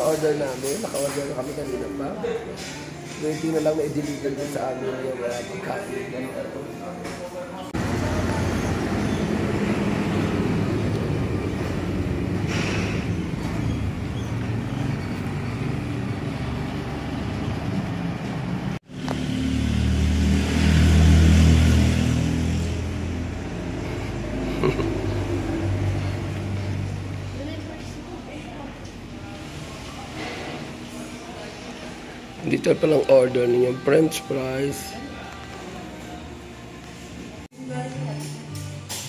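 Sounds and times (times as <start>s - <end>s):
vehicle engines rumbling: 7.7s - 37.5s.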